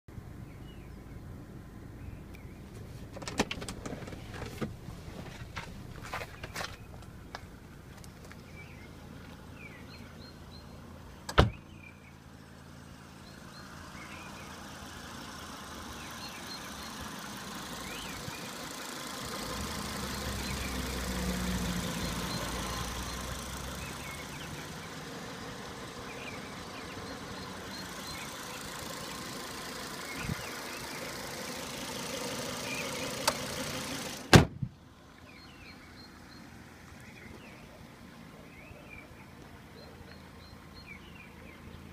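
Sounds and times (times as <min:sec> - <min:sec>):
car engine idling: 0:00.1 - 0:41.9
car door shutting: 0:03.0 - 0:06.9, 0:11.3 - 0:11.7, 0:33.2 - 0:34.8
bonnet slamming shut: 0:34.3 - 0:34.7.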